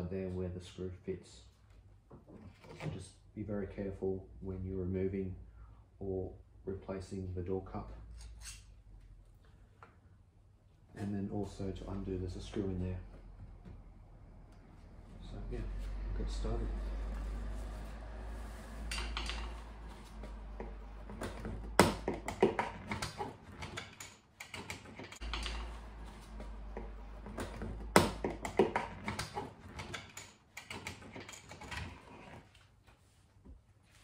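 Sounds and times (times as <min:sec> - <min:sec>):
low steady rumble: 0:10.6 - 0:22.3.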